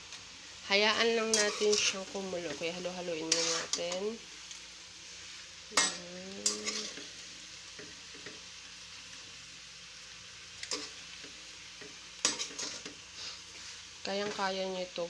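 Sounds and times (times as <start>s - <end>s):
steady sizzle: 0.0s - 15.0s
metal spoon scraping a pan: 1.0s - 4.2s, 5.7s - 7.2s, 10.6s - 14.6s.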